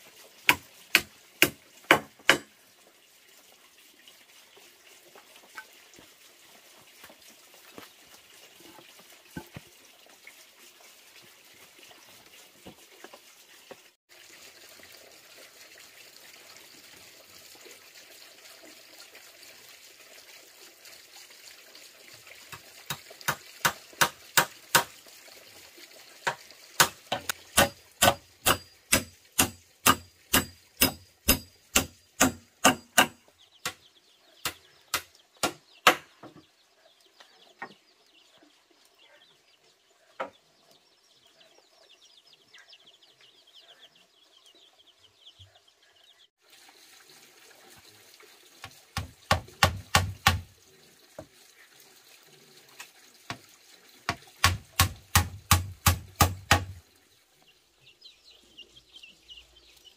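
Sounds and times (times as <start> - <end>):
hammer striking nail into wood: 1.0 - 2.5, 26.8 - 33.2, 49.3 - 50.4, 54.4 - 56.8.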